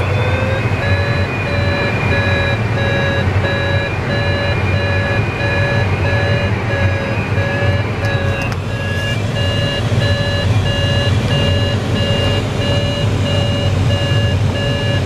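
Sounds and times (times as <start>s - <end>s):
cockpit airflow noise: 0.0s - 15.0s
variometer beeping: 0.0s - 15.0s.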